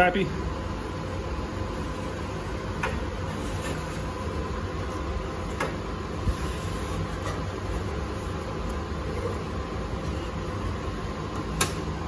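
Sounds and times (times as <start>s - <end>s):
air conditioning hum: 0.0s - 12.0s.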